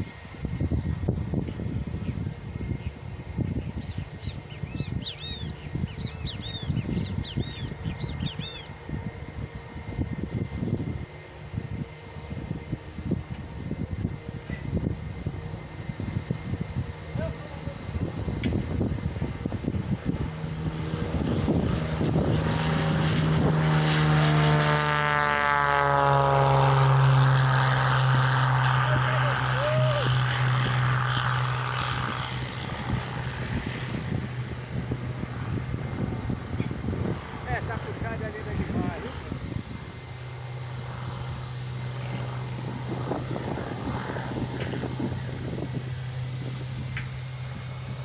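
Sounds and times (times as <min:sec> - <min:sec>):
low gusty rumble: 0:00.0 - 0:48.0
propeller plane passing by: 0:00.0 - 0:48.0
bird chirping: 0:03.7 - 0:08.8.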